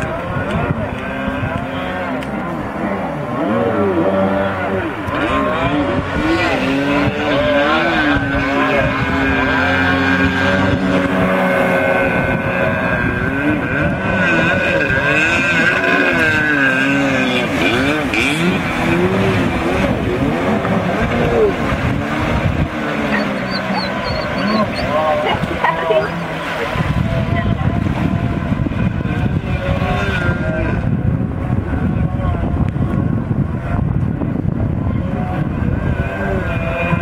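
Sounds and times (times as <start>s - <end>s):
jet ski engine revving: 0.0s - 37.0s.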